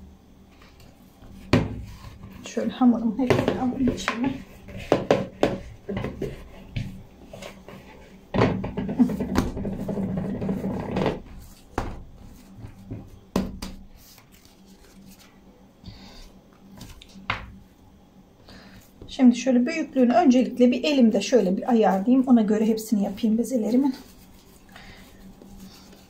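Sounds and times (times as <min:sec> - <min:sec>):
dough being squished by hand: 0:00.5 - 0:16.0.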